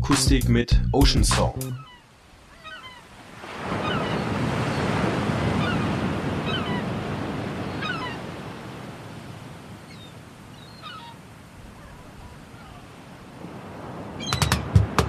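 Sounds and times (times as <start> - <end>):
gulls crying: 1.0 - 8.5, 9.9 - 13.1, 14.1 - 15.0
ocean wave washing: 1.8 - 15.0.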